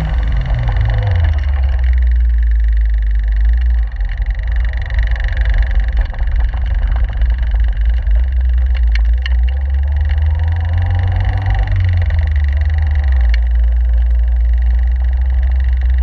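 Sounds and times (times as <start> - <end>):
car engine running: 0.0 - 16.0
wind buffeting microphone: 3.9 - 13.5.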